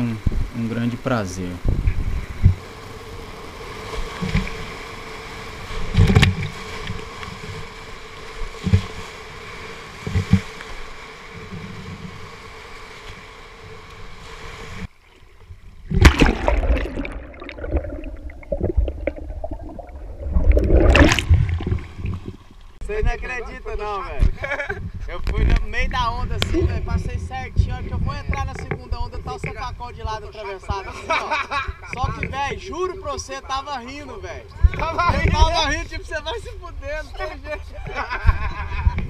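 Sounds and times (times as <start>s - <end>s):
waves thudding against boat: 0.0s - 23.3s, 24.1s - 39.0s
muffled underwater churning: 1.1s - 23.2s
whitewater rushing: 16.0s - 22.4s.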